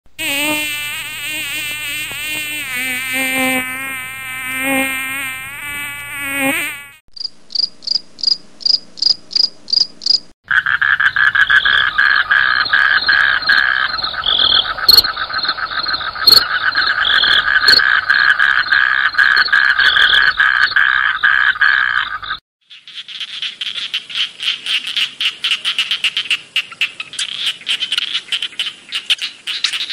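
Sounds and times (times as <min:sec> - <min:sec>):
mosquito whining: 0:00.2 - 0:07.0
cricket chirping: 0:07.2 - 0:10.3, 0:11.2 - 0:22.4
frogs croaking in chorus: 0:07.5 - 0:29.9.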